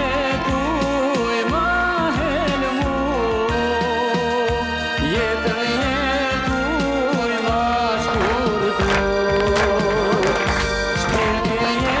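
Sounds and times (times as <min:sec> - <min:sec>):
accordion: 0:00.0 - 0:12.0
violin: 0:00.0 - 0:12.0
hands clapping a beat: 0:07.2 - 0:12.0.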